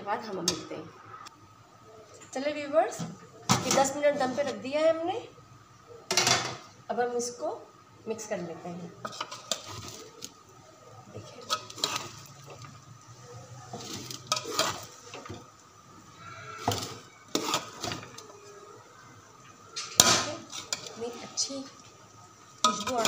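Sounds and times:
metal ladle scraping a pot: 9.0 - 10.3, 11.2 - 12.8, 13.7 - 15.5, 16.2 - 18.3, 19.8 - 21.3, 22.6 - 23.0.

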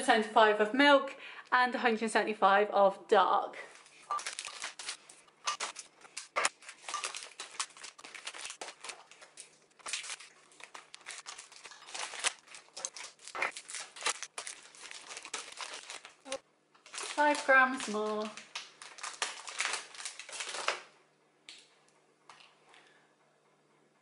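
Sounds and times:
packaging crinkling: 3.7 - 20.9.

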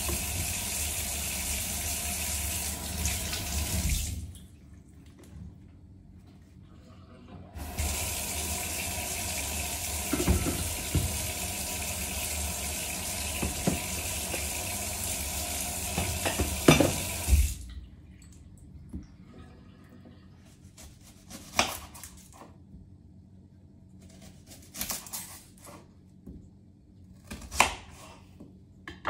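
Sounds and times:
clunks of objects in sink: 10.0 - 11.2
tap water splashing into sink: 10.0 - 11.5, 13.1 - 14.7, 15.8 - 19.1.

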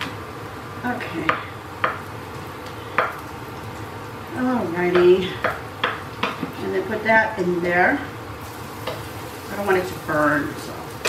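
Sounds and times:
woman's voice: 0.8 - 1.5, 4.3 - 5.5, 6.6 - 8.2, 9.4 - 11.0.

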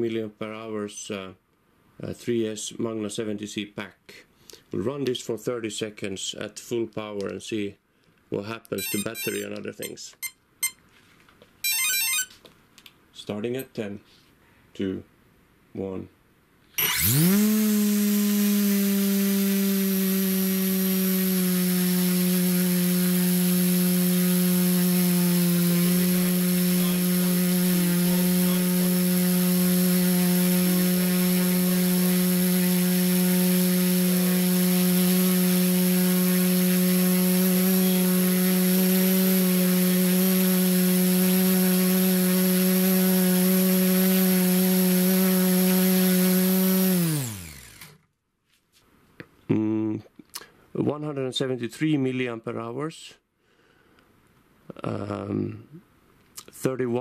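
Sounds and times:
electric motor and propeller whine: 16.8 - 25.2, 25.8 - 48.0.

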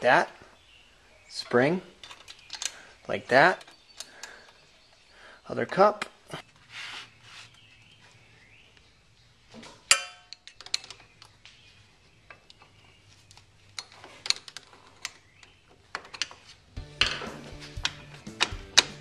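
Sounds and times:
ringing metallic clang: 9.9 - 10.4.

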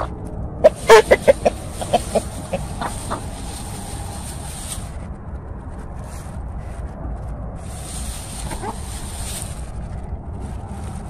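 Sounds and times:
chickens clucking: 0.0 - 4.8, 8.4 - 9.4.

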